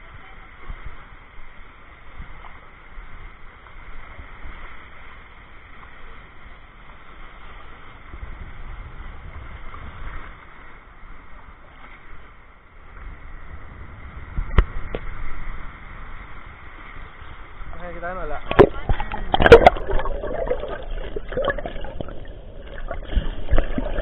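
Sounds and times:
small waves lapping: 14.6 - 24.0
low rumble: 18.5 - 24.0.

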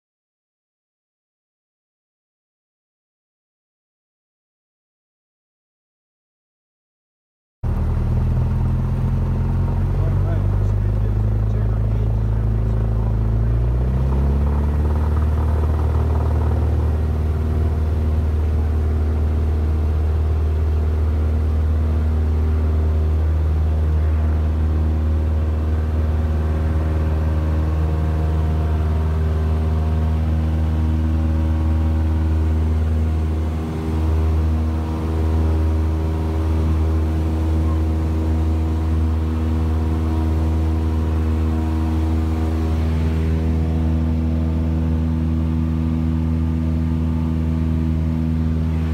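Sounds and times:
airplane propeller engine inside cabin: 7.6 - 48.9.

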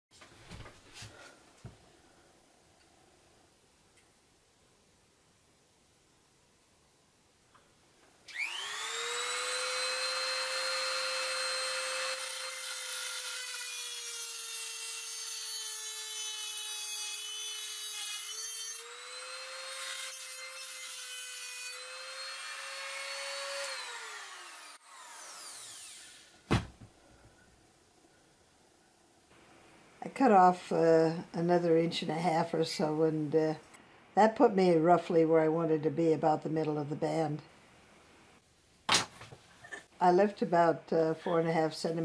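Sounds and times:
rotary tool cutting steel: 8.3 - 26.3
sharp knock: 26.5 - 26.9.

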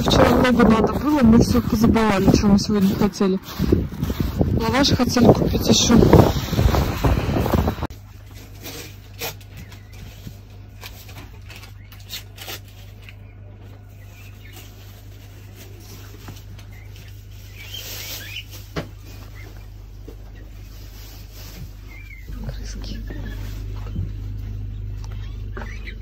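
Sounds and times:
wind on microphone: 0.0 - 7.9
low electrical hum: 0.0 - 26.0.

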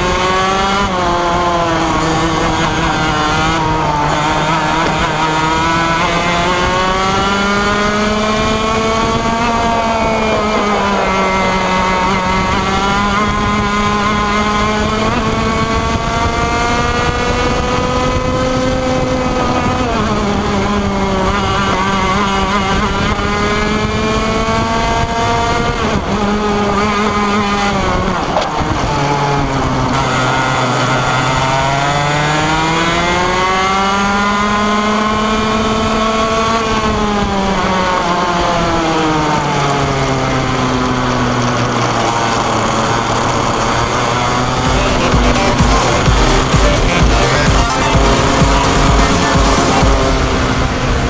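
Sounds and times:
kart engine revving: 0.0 - 51.0.

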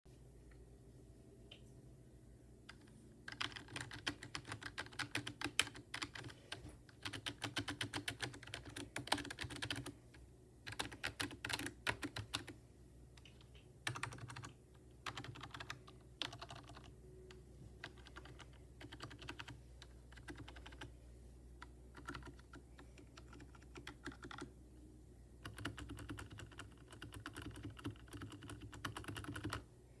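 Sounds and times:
keyboard keys clacking: 2.7 - 10.0, 10.7 - 12.6, 13.2 - 20.9, 21.6 - 24.5.

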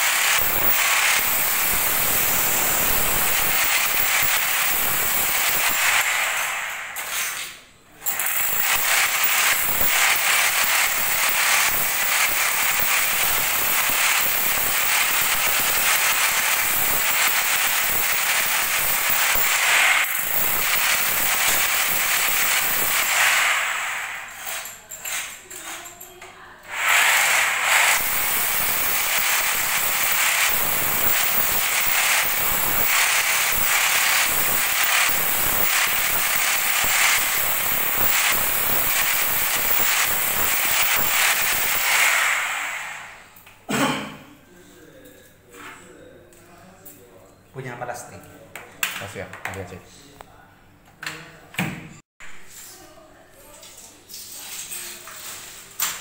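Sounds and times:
hammer drill chiselling tile: 0.0 - 25.3, 26.7 - 43.2.

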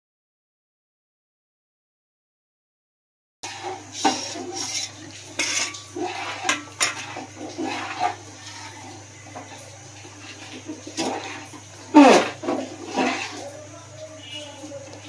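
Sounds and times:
ladle scraping metal pot: 3.4 - 15.0.

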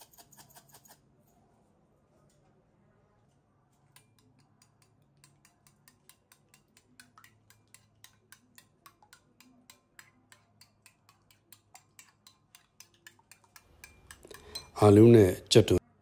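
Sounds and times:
spoon beating eggs in bowl: 0.0 - 1.2, 3.2 - 15.5.

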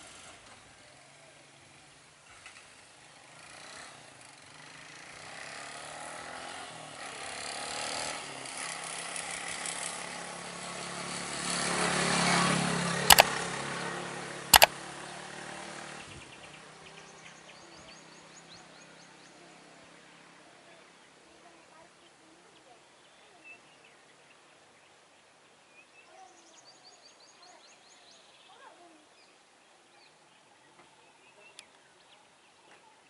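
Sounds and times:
sharp clicks: 13.1 - 13.4.

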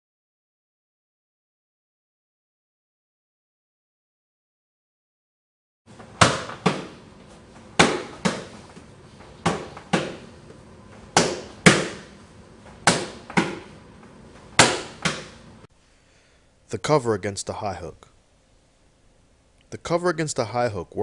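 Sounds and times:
gloved punches slapping on arms: 6.2 - 7.0, 7.7 - 8.7, 9.4 - 10.3, 11.1 - 12.1, 12.8 - 13.7, 14.6 - 15.4.

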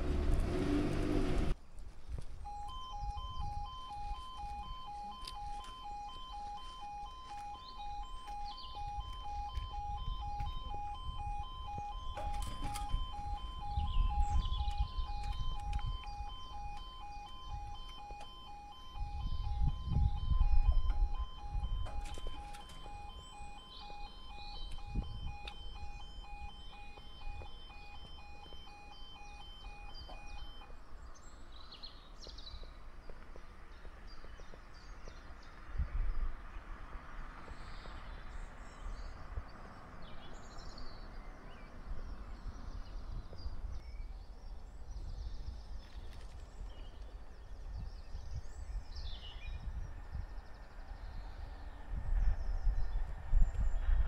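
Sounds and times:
birds chirping: 1.6 - 54.0
level crossing alarm tones: 2.4 - 30.8.

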